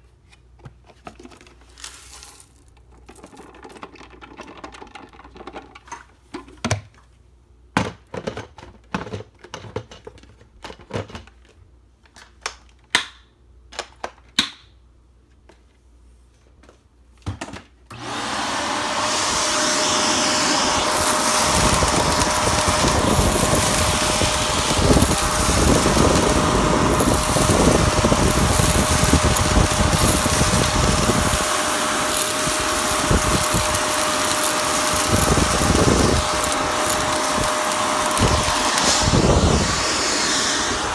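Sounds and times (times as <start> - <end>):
vacuum cleaner running: 17.9 - 40.9
rice and pasta being sucked up: 18.0 - 40.9.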